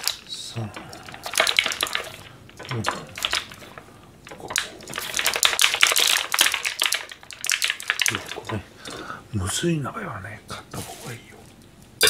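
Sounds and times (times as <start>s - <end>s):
plastic egg pack crackling: 0.0s - 9.1s.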